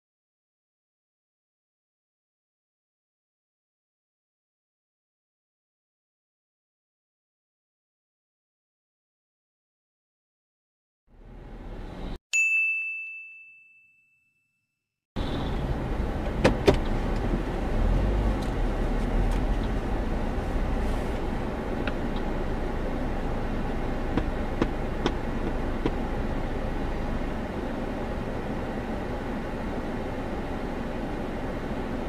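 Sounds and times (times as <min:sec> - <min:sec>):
car rumbling slowly: 0:11.1 - 0:12.2, 0:15.2 - 0:32.0
bright ding: 0:12.4 - 0:14.6.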